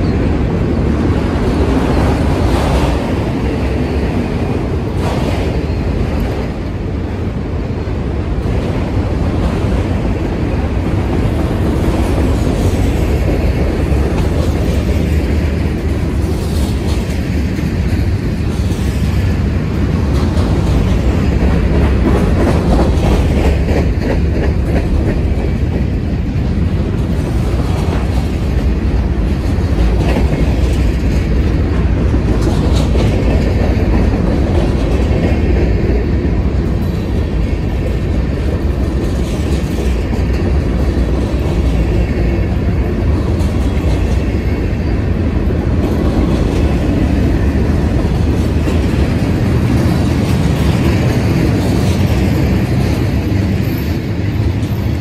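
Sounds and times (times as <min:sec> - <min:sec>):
steel wheels rumbling on rail: 0:00.0 - 0:55.0
wheels clacking over rail joints: 0:00.0 - 0:55.0.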